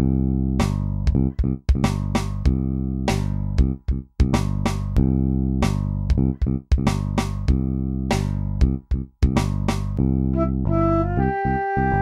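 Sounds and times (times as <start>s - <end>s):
steady bass line: 0.0s - 12.0s
flute holding long notes: 10.4s - 12.0s.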